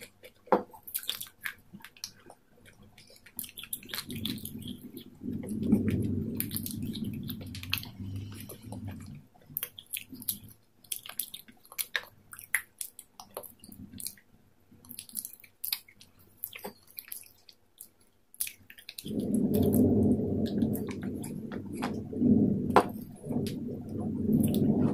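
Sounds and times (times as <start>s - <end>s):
chewing salad greens: 0.0s - 22.0s
low rumble: 3.9s - 9.4s, 19.0s - 24.9s
wet mouth clicks: 14.9s - 21.9s.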